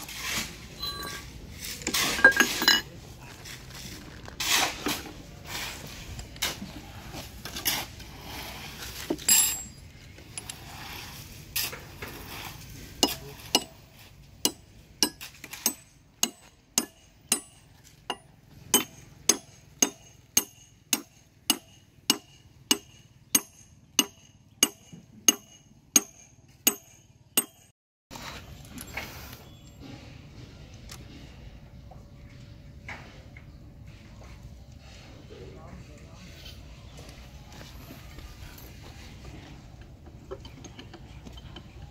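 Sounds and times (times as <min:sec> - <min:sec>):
hammer striking metal: 0:14.4 - 0:27.7.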